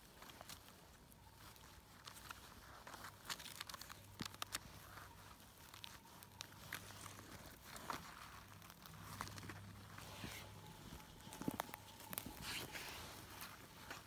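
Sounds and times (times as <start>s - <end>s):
rustling and snapping of forest floor: 1.4s - 9.8s.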